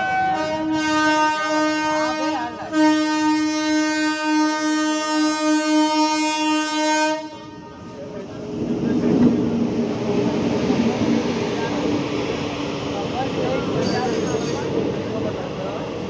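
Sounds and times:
train air horn blast: 0:00.0 - 0:07.9.

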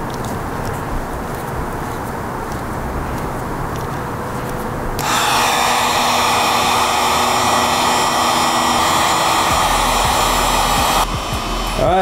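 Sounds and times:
heat gun blowing hot air: 0:05.0 - 0:12.0.

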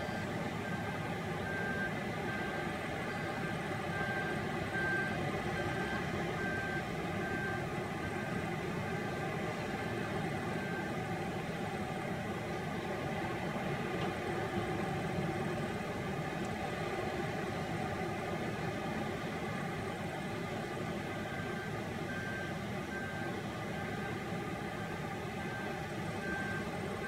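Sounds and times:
reversing alarm beeping: 0:00.0 - 0:11.0, 0:21.3 - 0:26.7
diesel engine running: 0:00.0 - 0:27.0.

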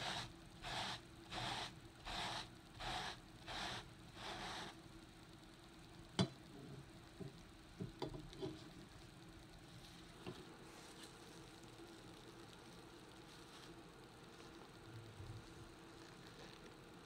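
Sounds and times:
brush scrubbing carpet: 0:00.0 - 0:04.7.

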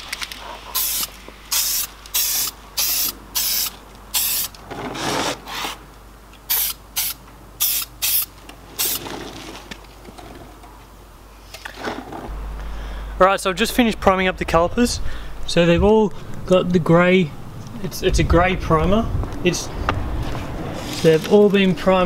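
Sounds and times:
aerosol spray can hissing: 0:00.8 - 0:04.5, 0:06.5 - 0:09.0.

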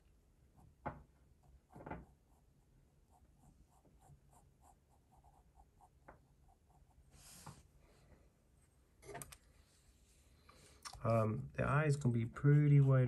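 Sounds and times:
pencil scratching on paper: 0:01.4 - 0:07.5.

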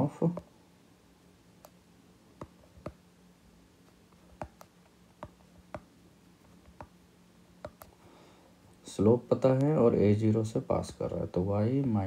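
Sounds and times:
faint low hum: 0:00.0 - 0:12.0
stylus tapping on glass screen: 0:04.3 - 0:05.9, 0:06.6 - 0:07.0, 0:07.6 - 0:07.9.

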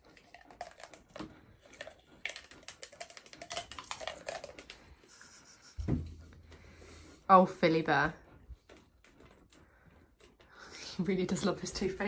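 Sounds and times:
toothbrush clicking on dog teeth: 0:00.0 - 0:05.8
thump: 0:05.8 - 0:06.2.

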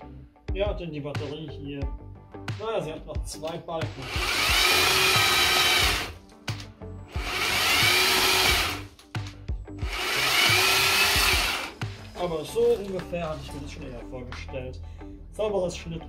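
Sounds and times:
chainsaw cutting branches: 0:04.2 - 0:06.2, 0:07.2 - 0:08.9, 0:09.9 - 0:11.8.

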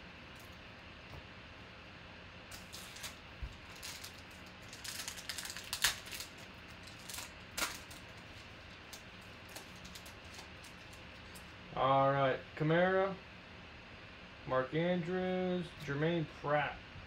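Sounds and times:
foil wrappers crinkling and tearing: 0:02.5 - 0:11.5.

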